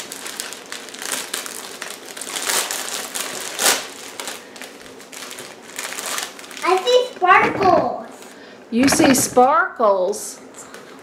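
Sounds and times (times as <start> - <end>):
plastic bags crinkling: 0.0 - 8.3.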